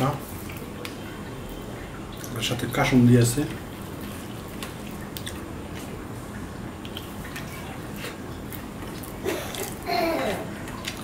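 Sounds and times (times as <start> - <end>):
eating from the hand: 6.8 - 11.0.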